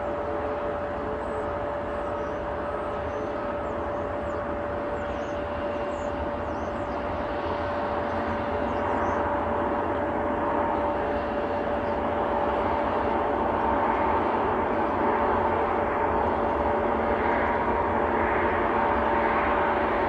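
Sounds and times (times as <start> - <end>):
jet engines whining: 0.0 - 20.0.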